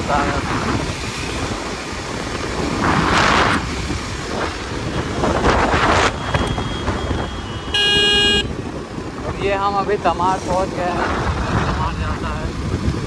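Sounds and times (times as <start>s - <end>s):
road noise: 0.0s - 13.0s
wind rushing over microphone: 0.0s - 13.0s
motorcycle engine: 6.7s - 9.2s.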